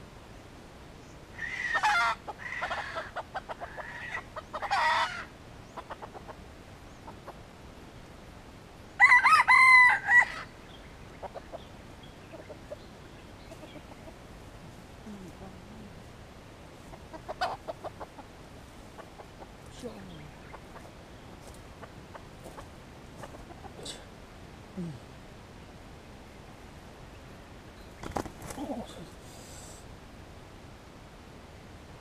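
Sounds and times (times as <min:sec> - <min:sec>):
rooster crowing: 0:09.0 - 0:10.5
rustles in dry leaves: 0:12.3 - 0:24.2.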